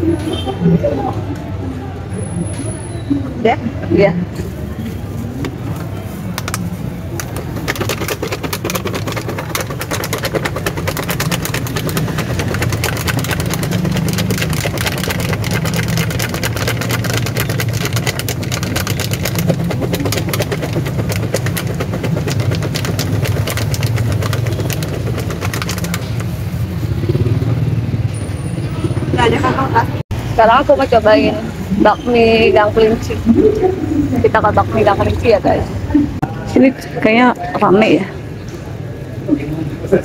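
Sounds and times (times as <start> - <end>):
street traffic and idling engines: 0.0 - 40.0
plastic bag crinkling: 5.6 - 26.7.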